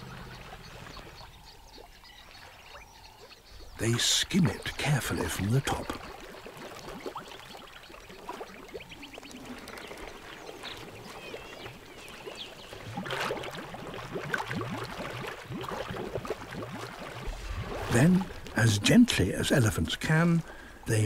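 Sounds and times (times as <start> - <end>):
elephants splashing water: 3.8 - 20.1.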